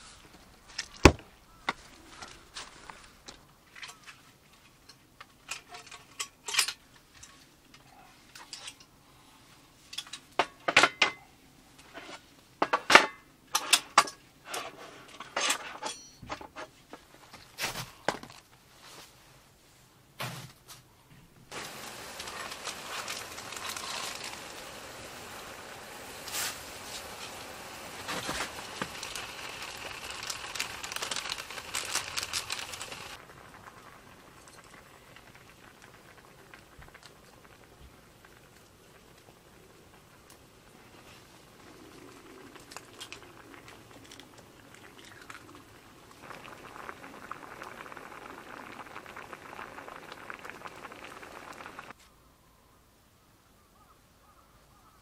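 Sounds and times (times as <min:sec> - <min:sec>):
metal cookware clinking: 0:15.4 - 0:16.4
food sizzling on stove: 0:21.5 - 0:39.7, 0:44.8 - 0:51.9.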